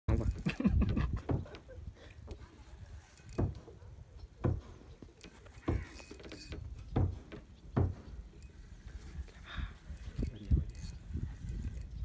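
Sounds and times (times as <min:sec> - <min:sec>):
dull thumps on wooden boat: 0:00.8 - 0:01.6, 0:03.4 - 0:03.7, 0:04.4 - 0:04.8, 0:05.6 - 0:08.1.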